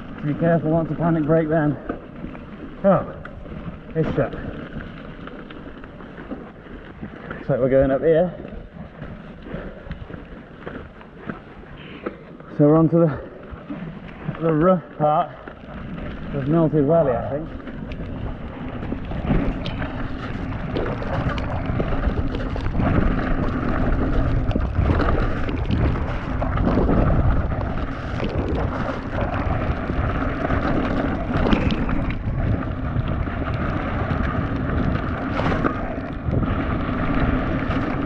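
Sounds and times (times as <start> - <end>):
mountain bike clattering: 0.0 - 38.0
wheels knocking on rocks: 0.0 - 38.0
wind rushing over microphone: 16.0 - 38.0.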